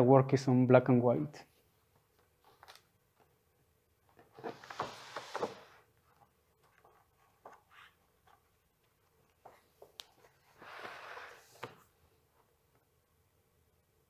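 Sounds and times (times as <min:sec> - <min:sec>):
page turning swish: 0:04.4 - 0:05.8.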